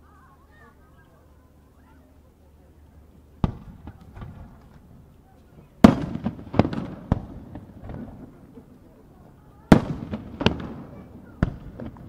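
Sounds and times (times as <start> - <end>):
fireworks bangs: 3.4 - 12.0.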